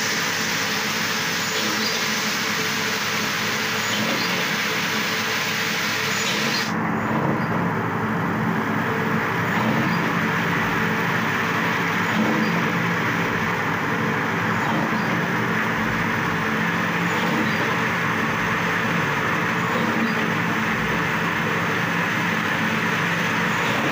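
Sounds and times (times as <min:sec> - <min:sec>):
hiss: 0:00.0 - 0:06.7
spindle machine droning: 0:00.0 - 0:23.9.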